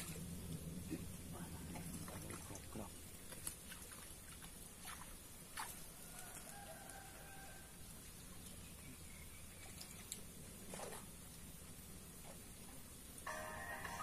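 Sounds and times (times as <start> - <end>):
faint rooster crowing: 5.8 - 8.0.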